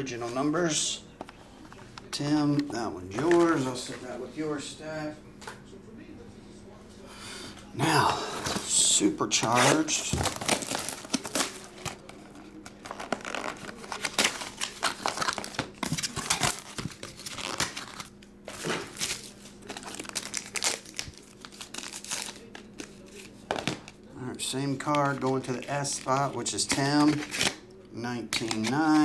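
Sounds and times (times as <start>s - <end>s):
plastic wrapper crinkling: 9.5s - 24.0s.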